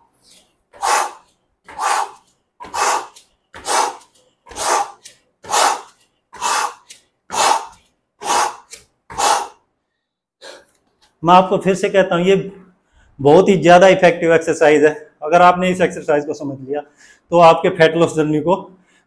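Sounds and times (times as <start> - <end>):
man breathing out rhythmically: 0.0 - 10.8, 16.9 - 17.3, 18.8 - 19.0.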